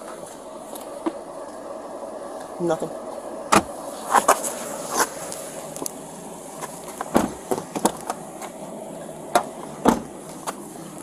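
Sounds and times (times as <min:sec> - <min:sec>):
steady background hum: 0:00.0 - 0:11.0
clicks and knocks in a car: 0:07.0 - 0:08.6, 0:09.3 - 0:10.6.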